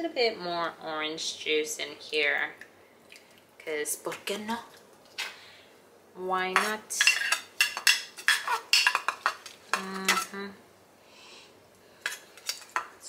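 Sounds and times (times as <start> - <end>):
knife clinking and scraping bowl: 6.6 - 10.4, 12.0 - 12.9.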